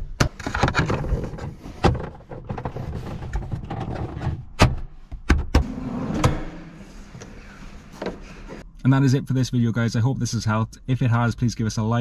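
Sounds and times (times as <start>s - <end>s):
plastic rustling and scraping: 0.4s - 4.5s.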